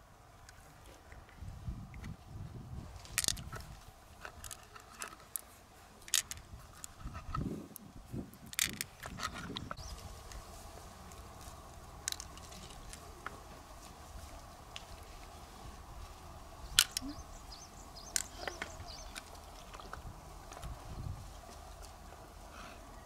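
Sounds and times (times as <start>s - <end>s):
clicks of pearls and shell: 3.0s - 7.3s, 8.3s - 9.8s, 18.0s - 20.0s.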